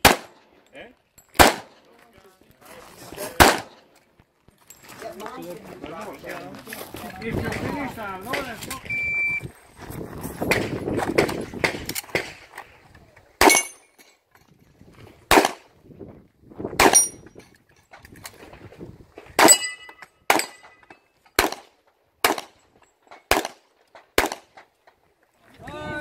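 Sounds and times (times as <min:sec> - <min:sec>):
handgun shots: 0:00.0 - 0:00.4, 0:01.4 - 0:01.8, 0:03.4 - 0:03.8, 0:13.4 - 0:13.8, 0:15.3 - 0:15.6, 0:16.8 - 0:17.2, 0:21.4 - 0:22.6, 0:23.2 - 0:23.6, 0:24.2 - 0:24.6.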